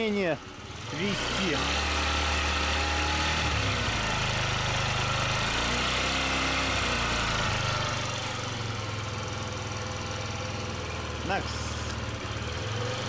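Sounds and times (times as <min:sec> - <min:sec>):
scooter engine idling: 0:00.0 - 0:02.7, 0:06.8 - 0:13.0.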